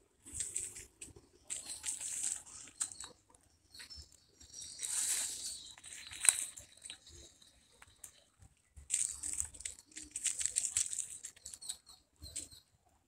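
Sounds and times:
dry leaves crackling underfoot: 0.2 - 3.2, 4.6 - 7.3, 8.9 - 11.8.

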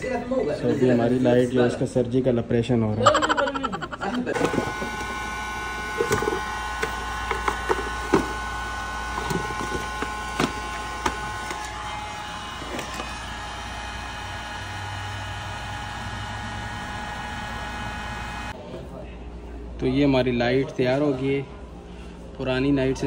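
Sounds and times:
steady machine whine: 4.3 - 18.6.

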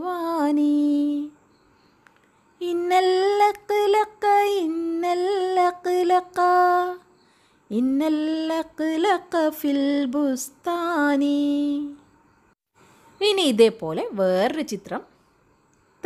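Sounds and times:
woman singing unaccompanied: 0.0 - 1.6, 2.5 - 12.1.

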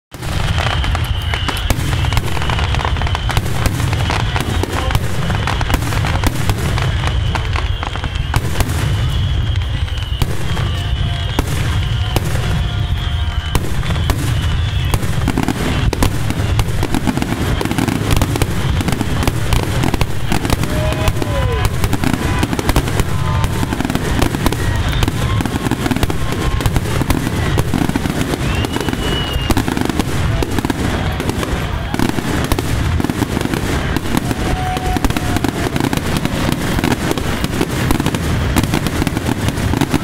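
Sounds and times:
fireworks booming and crackling: 0.1 - 40.0.

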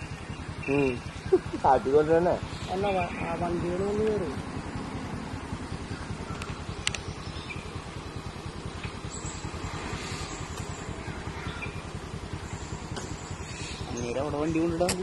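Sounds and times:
vehicle engine idling: 0.0 - 15.0
sharp click: 6.3 - 7.1, 14.8 - 15.0.

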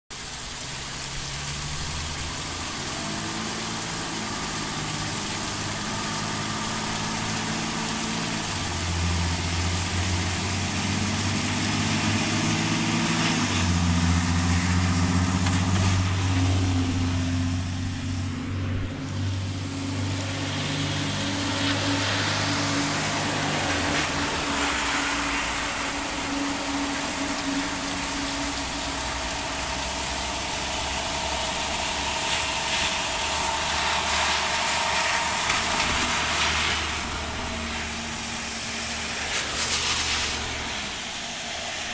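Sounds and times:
emergency vehicle engines droning: 0.1 - 41.9
tyre hiss on wet road: 0.1 - 41.9.

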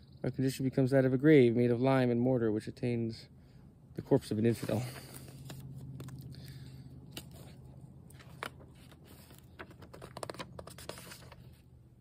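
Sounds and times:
book pages turning: 4.5 - 11.7.

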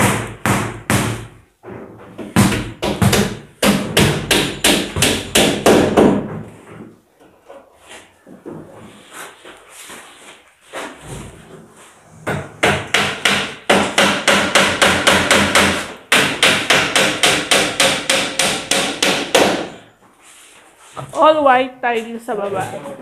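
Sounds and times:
rapid hammering: 0.0 - 1.4, 2.2 - 6.3, 12.2 - 19.8.

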